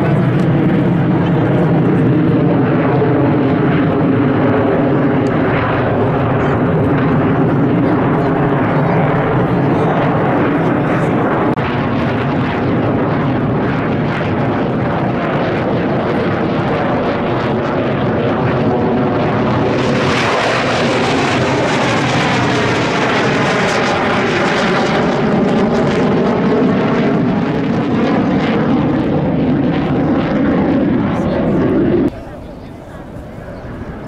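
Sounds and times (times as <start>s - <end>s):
jet engines roaring: 0.0s - 34.0s.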